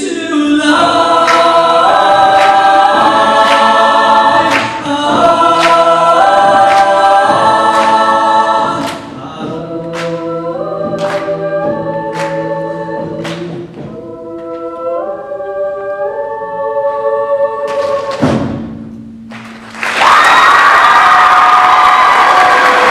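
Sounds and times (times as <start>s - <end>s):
choir singing held chords: 0.0s - 18.9s, 20.0s - 22.9s
audience cheering and applauding: 19.6s - 22.9s.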